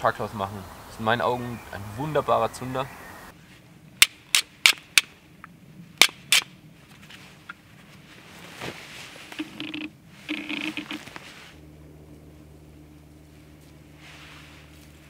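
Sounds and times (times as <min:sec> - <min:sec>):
short scraping rasps: 0:09.2 - 0:11.6.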